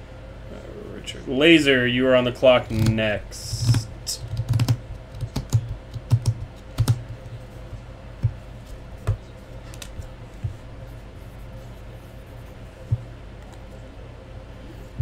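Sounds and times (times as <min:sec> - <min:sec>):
computer keyboard typing: 0:02.7 - 0:07.3.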